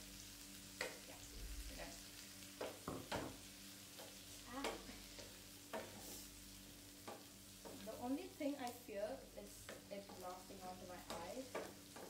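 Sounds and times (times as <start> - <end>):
sauce sizzling in a pan: 0.0 - 12.0
spatula scraping a pan: 4.0 - 6.4.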